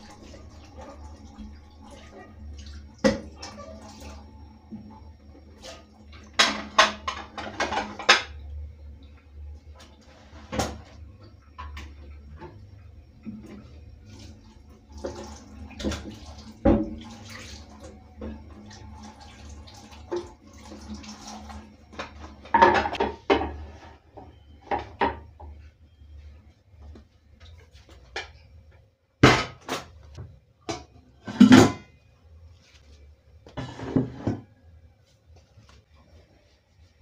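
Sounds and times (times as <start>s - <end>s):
water running from tap: 0.0s - 8.0s, 12.3s - 23.0s
plates and cups clattering: 6.4s - 8.4s, 22.0s - 23.9s, 31.2s - 31.9s.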